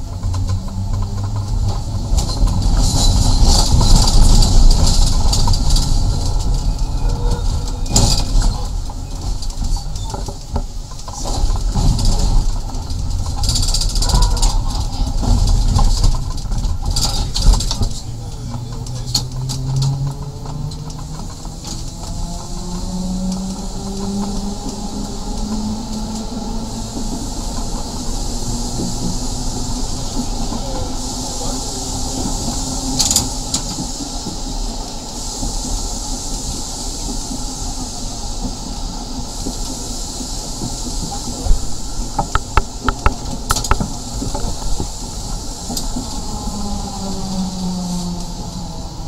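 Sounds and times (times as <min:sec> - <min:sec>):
tram rumbling on rails: 0:00.0 - 0:49.0
wheels clicking: 0:00.0 - 0:49.0
hiss: 0:21.2 - 0:49.0.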